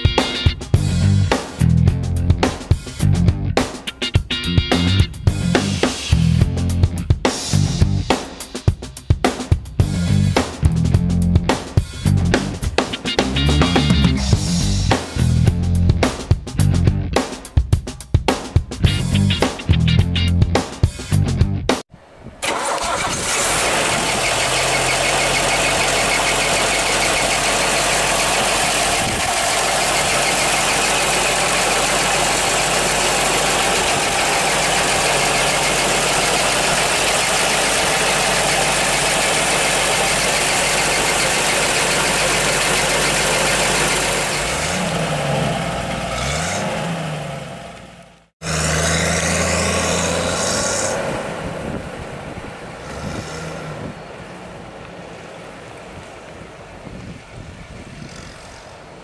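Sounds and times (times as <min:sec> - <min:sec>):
car engine idling and revving: 0:04.7 - 0:07.0, 0:09.8 - 0:17.0, 0:22.4 - 0:56.5
vehicle driving off: 0:09.8 - 0:16.0, 0:22.4 - 0:56.8.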